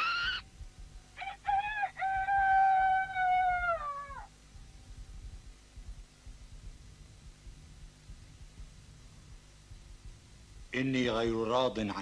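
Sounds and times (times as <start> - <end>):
cartoon baby monkey crying: 0.0 - 0.4.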